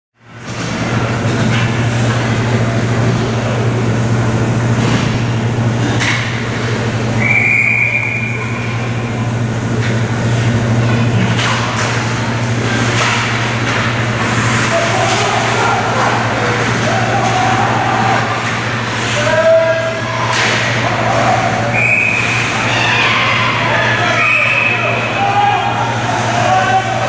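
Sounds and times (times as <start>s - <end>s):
low hum of indoor rink: 0.2s - 27.0s
referee's whistle: 7.2s - 8.6s, 21.7s - 22.5s, 24.2s - 25.0s
sticks and puck clacking on ice: 11.2s - 21.6s.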